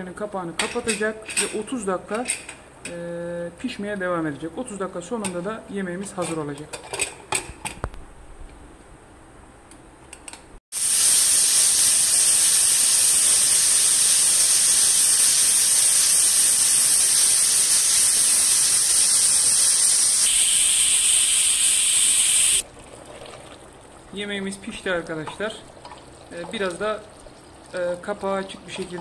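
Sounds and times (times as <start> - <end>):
pressure cooker hissing steam: 10.7 - 22.6.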